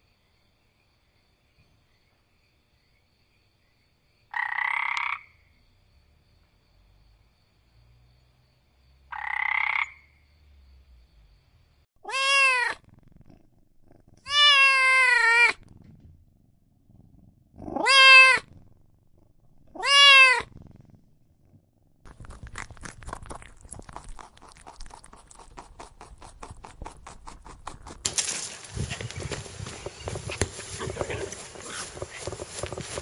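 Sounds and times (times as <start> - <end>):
cat meowing: 12.0 - 12.8, 14.2 - 15.6, 17.7 - 18.5, 19.7 - 20.5
soft ticks or patter: 22.1 - 33.0.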